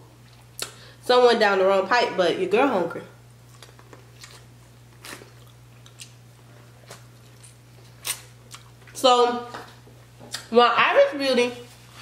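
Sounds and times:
chewing corn on the cob: 3.5 - 6.2.

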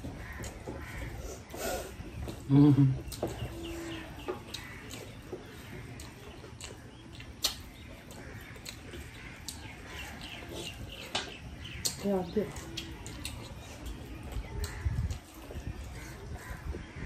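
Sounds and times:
fingers mixing food on plates: 0.0 - 17.0
small birds chirping: 0.0 - 17.0.

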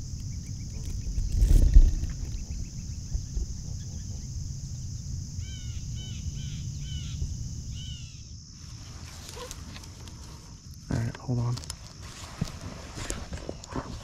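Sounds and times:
low rumble: 0.0 - 9.1
crickets droning: 0.0 - 14.0.

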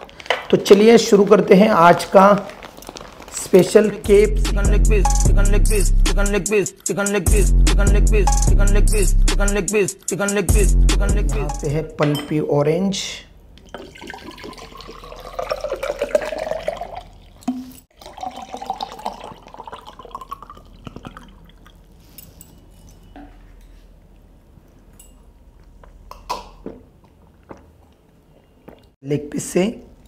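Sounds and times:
drink pouring into a glass: 13.6 - 22.0
person swallowing: 20.8 - 21.4.

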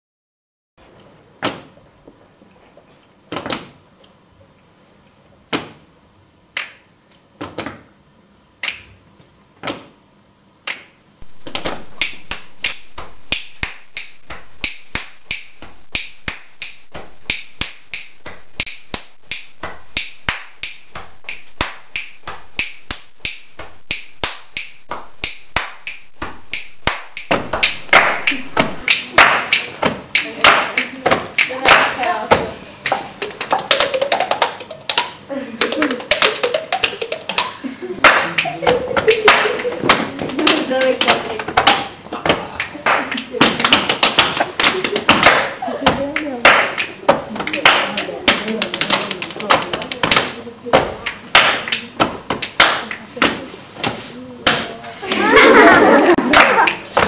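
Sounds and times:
finger snaps: 6.5 - 6.9, 8.6 - 9.0, 10.6 - 11.0, 12.0 - 31.6
hand claps: 6.5 - 6.9, 8.6 - 9.0, 10.6 - 54.7, 55.4 - 57.0.

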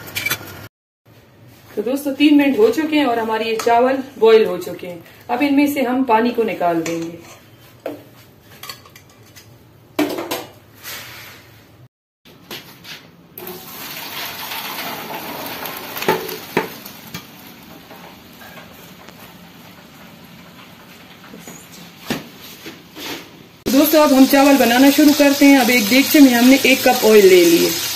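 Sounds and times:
water pouring into colander: 13.4 - 16.0.

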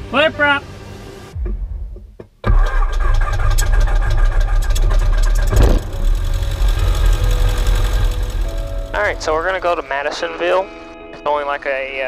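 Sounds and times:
small aircraft engine running: 2.5 - 10.4.

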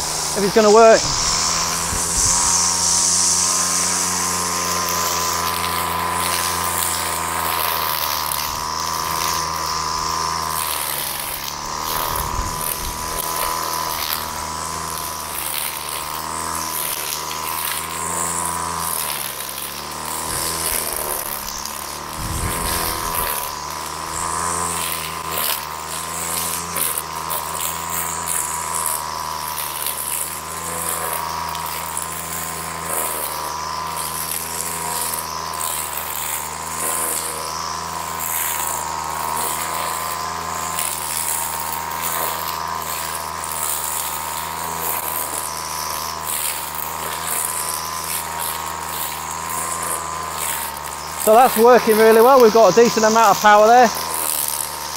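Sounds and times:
strimmer cutting grass: 0.0 - 54.9.

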